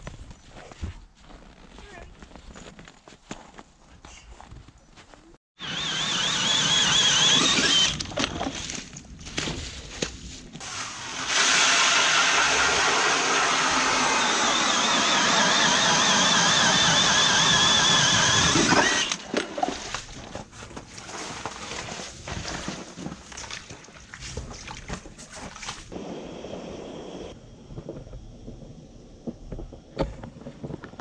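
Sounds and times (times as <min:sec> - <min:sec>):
power ice auger drilling: 0:05.6 - 0:08.8, 0:11.0 - 0:19.9
slush and water sloshing: 0:06.6 - 0:14.1, 0:17.8 - 0:26.0.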